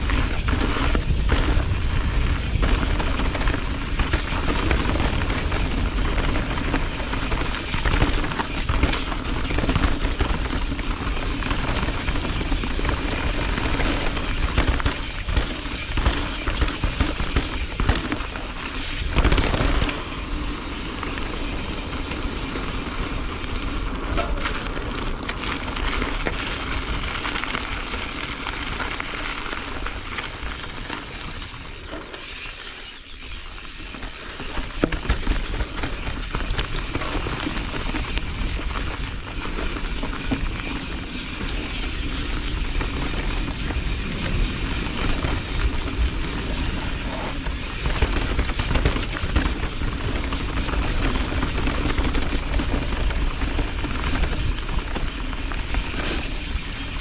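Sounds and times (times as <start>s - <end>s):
bike rattling: 0.0s - 57.0s
bike tyres crunching over dirt: 0.0s - 57.0s.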